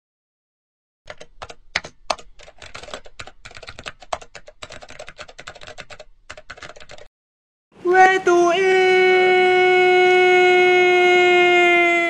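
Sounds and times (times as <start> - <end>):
computer keyboard keystroke clicks: 1.1 - 7.1.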